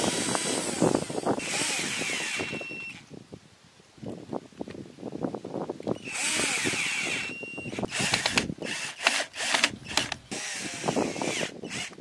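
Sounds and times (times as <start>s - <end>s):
cordless drill driving screws: 0.0s - 3.0s, 6.0s - 12.0s.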